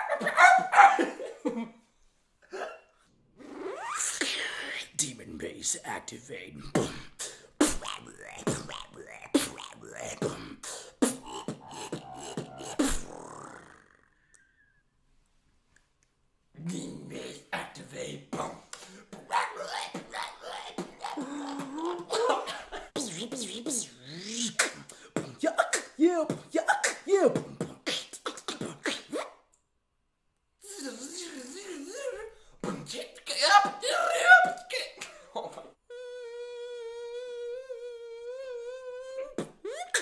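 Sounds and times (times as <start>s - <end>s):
beatboxer growling bass voice: 3.7s - 14.2s, 16.6s - 29.3s, 30.6s - 35.1s, 35.9s - 40.0s
beatboxed kick-drum hits: 6.7s - 13.2s, 23.0s - 29.2s.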